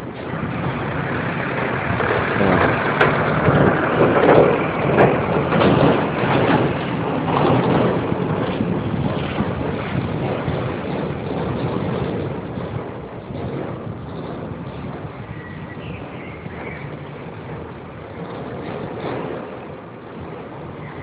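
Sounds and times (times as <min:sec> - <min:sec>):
vehicle passing: 0:00.0 - 0:08.2
wind noise on microphone: 0:00.0 - 0:21.0.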